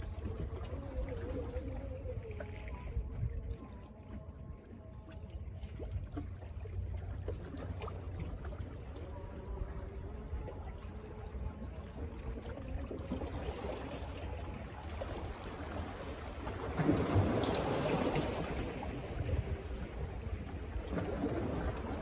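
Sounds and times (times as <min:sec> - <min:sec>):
water splashing against rocks: 0:00.0 - 0:04.0, 0:04.9 - 0:22.0.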